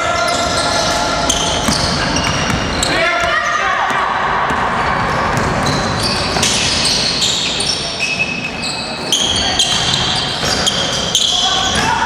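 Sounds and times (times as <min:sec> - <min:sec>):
sneakers squeaking on gym floor: 0:00.0 - 0:12.0
steady din in a hall: 0:00.0 - 0:12.0
basketball bouncing: 0:01.3 - 0:06.8.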